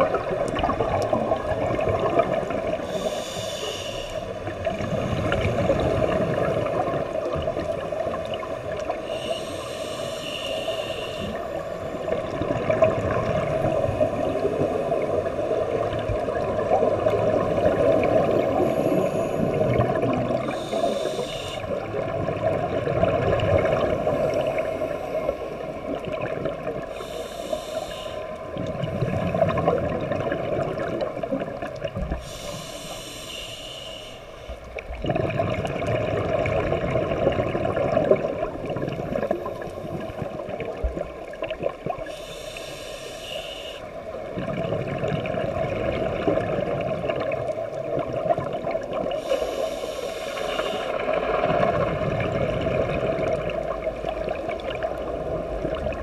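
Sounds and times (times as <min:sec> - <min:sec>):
exhaled bubbles gurgling: 0:00.0 - 0:56.0
regulator hissing inhales: 0:02.8 - 0:04.4, 0:09.0 - 0:11.8, 0:20.4 - 0:21.7, 0:26.9 - 0:28.5, 0:32.1 - 0:34.6, 0:42.1 - 0:43.9, 0:49.1 - 0:51.0.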